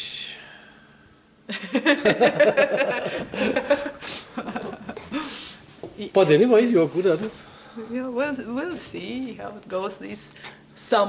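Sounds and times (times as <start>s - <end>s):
people laughing: 1.5s - 5.3s.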